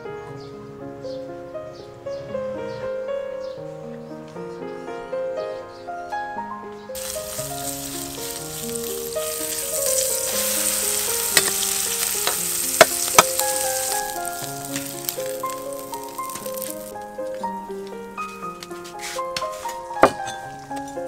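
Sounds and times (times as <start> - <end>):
batter sizzling in hot oil: 7.0 - 17.0
background music with plucked notes: 7.0 - 21.0.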